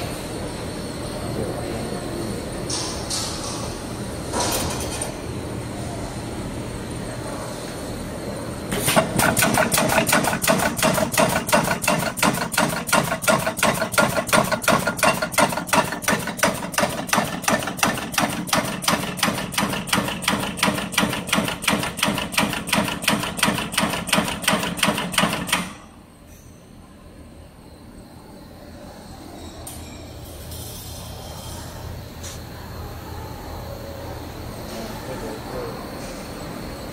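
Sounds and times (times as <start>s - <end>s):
spot welding machine clacking: 8.7s - 25.8s.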